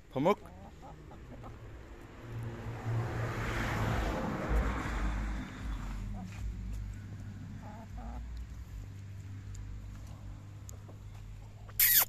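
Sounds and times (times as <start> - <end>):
hen clucking: 0.3 - 1.7, 7.5 - 8.4
rushing noise with low rumble: 2.1 - 7.4.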